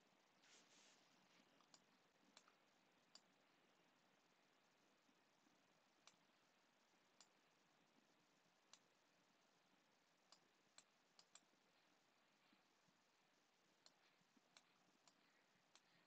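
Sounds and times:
small sharp clicks: 10.3s - 11.5s.

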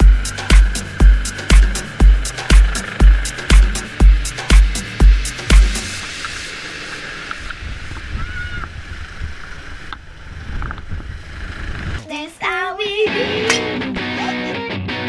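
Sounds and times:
bass-heavy electronic music: 0.0s - 6.7s, 13.1s - 15.0s.

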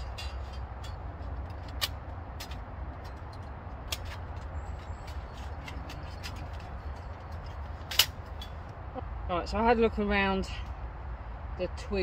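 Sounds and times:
metal panels clicking together: 0.0s - 8.6s
steady low rumble: 0.0s - 12.0s.

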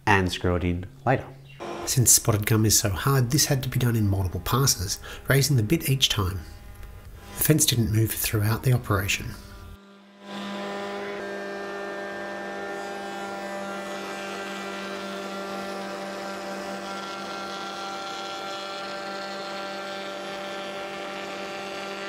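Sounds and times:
board cut by router bit: 1.6s - 2.6s, 9.4s - 22.0s
router humming: 1.6s - 22.0s.

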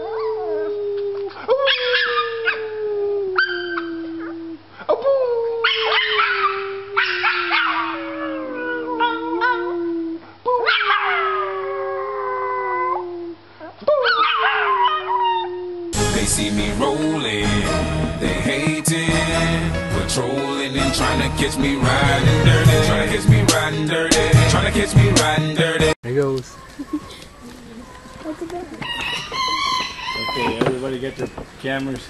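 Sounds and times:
small dog howling: 0.0s - 16.0s
music: 16.0s - 26.0s.

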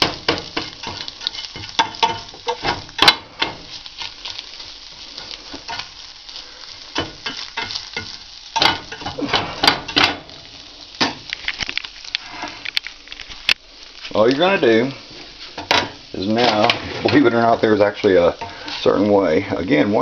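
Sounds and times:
eggs sizzling in a frying pan: 0.0s - 20.0s
utensil scraping a pan: 0.2s - 4.5s, 5.1s - 6.0s, 11.3s - 12.8s, 15.0s - 19.0s.

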